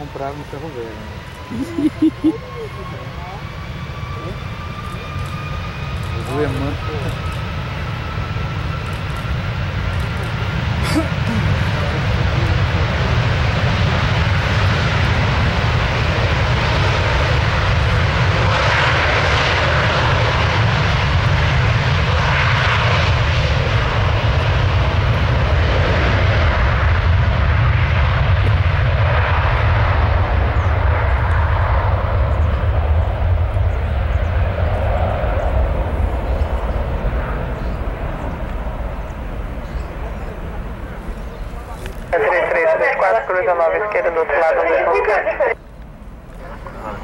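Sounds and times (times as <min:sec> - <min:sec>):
jet engines at take-off thrust: 0:00.0 - 0:47.0.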